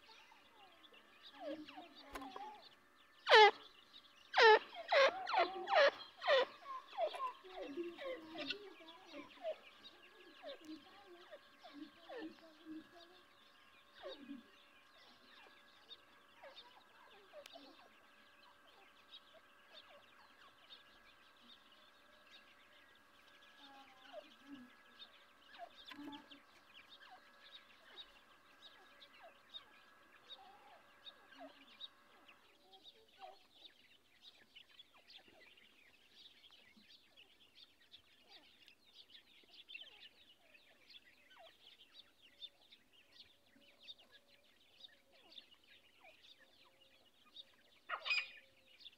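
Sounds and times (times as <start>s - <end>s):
faint steady drone: 0.0s - 48.9s.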